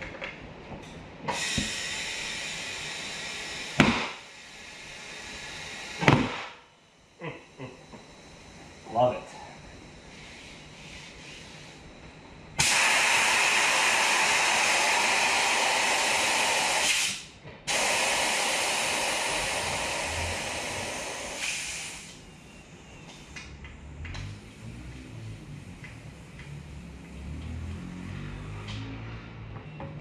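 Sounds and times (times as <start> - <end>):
compressed air hissing: 1.3 - 6.7, 7.8 - 12.0, 12.6 - 23.4.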